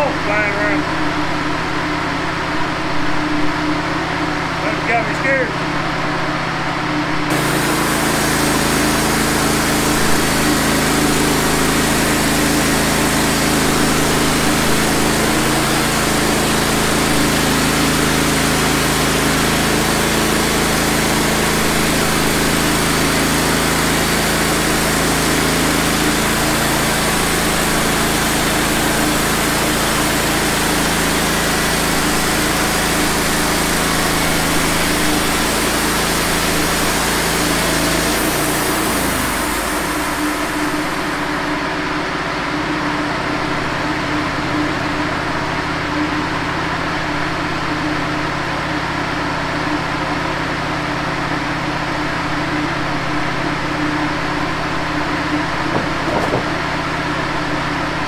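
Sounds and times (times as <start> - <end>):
sawmill engine drone: 0.0 - 58.0
band blade cutting log: 55.7 - 56.6.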